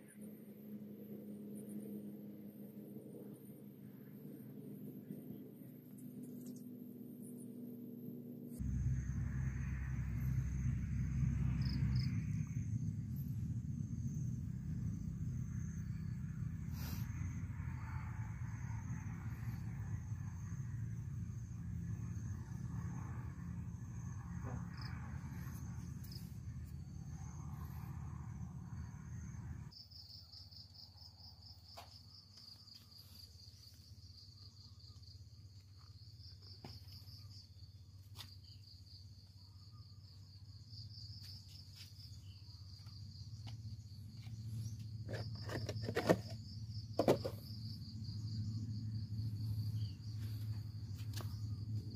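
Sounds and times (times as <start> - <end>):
low rumble: 8.6 - 29.7
insects trilling: 8.6 - 51.9.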